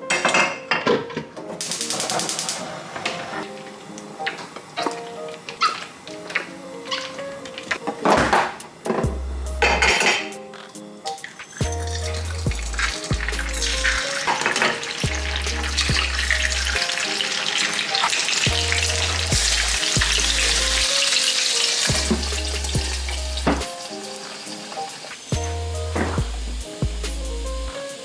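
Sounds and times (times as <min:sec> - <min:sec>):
food sizzling in a pan: 0:01.6 - 0:07.9, 0:09.6 - 0:28.0
background music with bass line: 0:09.0 - 0:10.5, 0:11.6 - 0:14.1, 0:15.0 - 0:16.9, 0:18.5 - 0:21.0, 0:21.9 - 0:23.8, 0:25.4 - 0:28.0.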